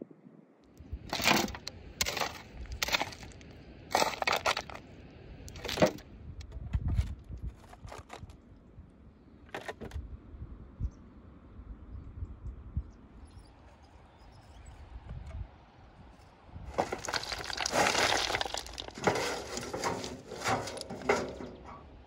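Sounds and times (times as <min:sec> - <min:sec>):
shovel scraping soil: 0:01.1 - 0:04.8, 0:16.7 - 0:21.8.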